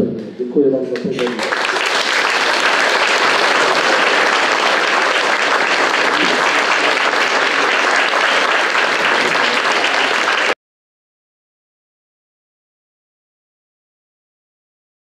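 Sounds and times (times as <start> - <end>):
audience applauding: 1.0 - 10.6.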